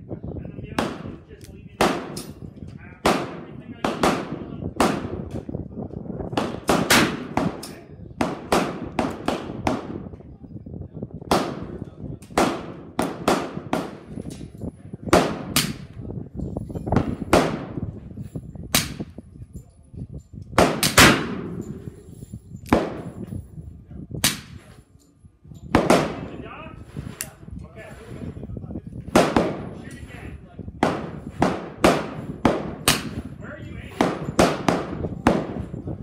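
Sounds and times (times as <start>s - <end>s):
gunshots: 1.8s - 2.3s, 3.0s - 5.2s, 6.4s - 10.0s, 11.3s - 14.1s, 15.1s - 15.9s, 17.0s - 17.9s, 20.6s - 21.9s, 22.7s - 23.2s, 25.8s - 26.4s, 29.1s - 29.8s, 30.8s - 33.3s, 33.9s - 35.7s.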